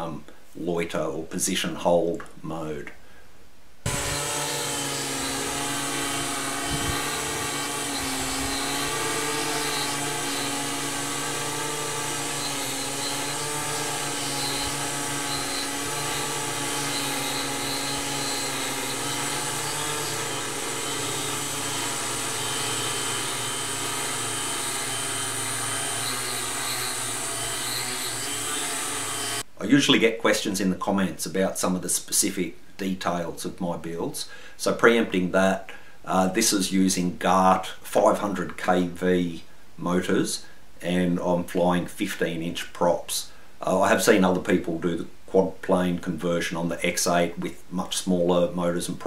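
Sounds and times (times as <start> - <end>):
drone motors hovering: 3.9 - 29.4.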